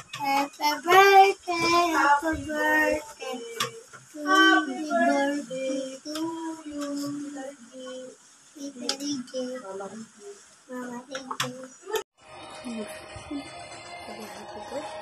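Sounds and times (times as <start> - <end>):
young children singing: 0.1 - 9.9, 10.8 - 12.0.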